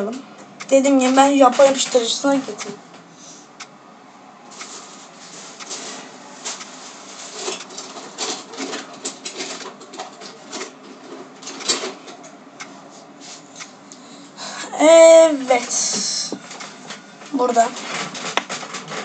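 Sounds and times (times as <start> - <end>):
objects clicking and rustling: 5.6 - 12.3, 15.6 - 19.0.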